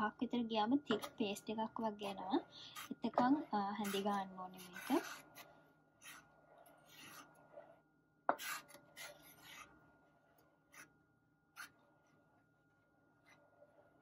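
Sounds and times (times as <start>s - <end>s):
wooden spoon scraping a metal pot: 1.9s - 9.8s.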